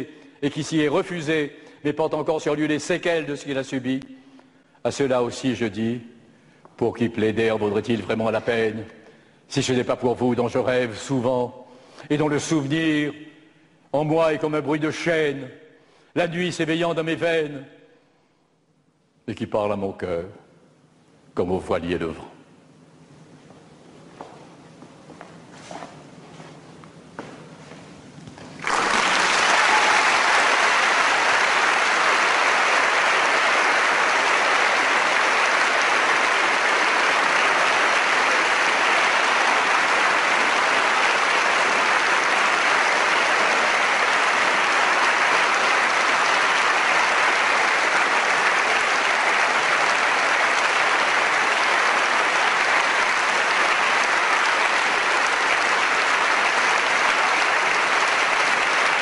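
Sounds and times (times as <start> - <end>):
large audience applauding: 28.5 - 59.0.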